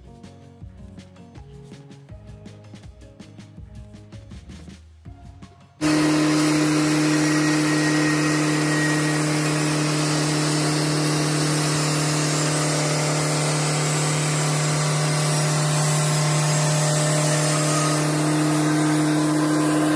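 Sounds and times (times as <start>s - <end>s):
band sawmill running: 5.8s - 19.9s.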